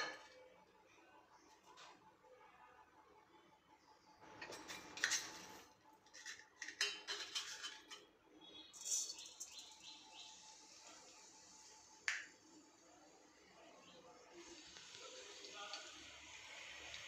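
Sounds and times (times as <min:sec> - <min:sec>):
bird chirping: 0:08.4 - 0:10.8
seeds clattering into pan: 0:08.7 - 0:09.8
oil sizzling: 0:08.8 - 0:17.0.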